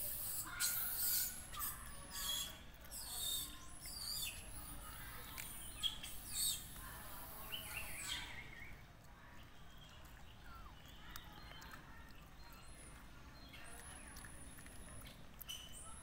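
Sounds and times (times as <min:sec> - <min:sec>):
birds chirping and calling: 0:00.0 - 0:08.8.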